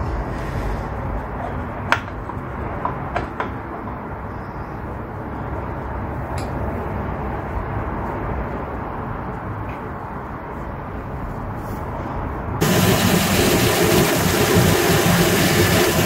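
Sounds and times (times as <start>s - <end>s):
lathe mill running: 12.6s - 16.0s.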